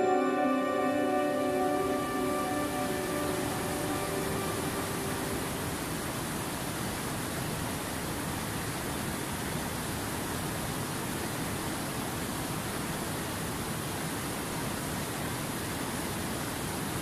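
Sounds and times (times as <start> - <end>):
river rushing over boulders: 4.2 - 17.0.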